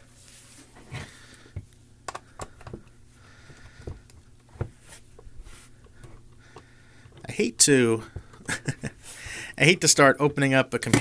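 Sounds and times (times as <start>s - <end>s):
screwdriver clicks and taps: 2.1s - 2.9s.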